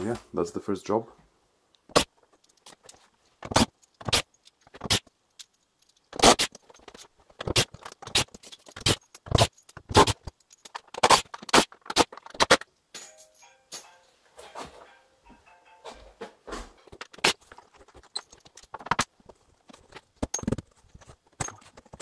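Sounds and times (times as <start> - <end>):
metallic clinking: 12.9 - 14.2, 18.0 - 18.8.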